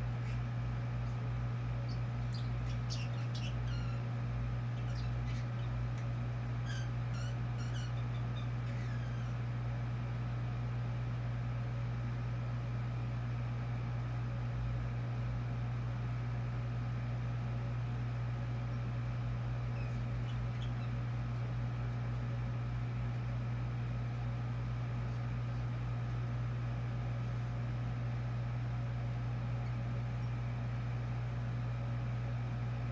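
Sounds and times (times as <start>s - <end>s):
low mechanical hum: 0.0s - 32.9s
budgie chirps: 6.6s - 9.4s.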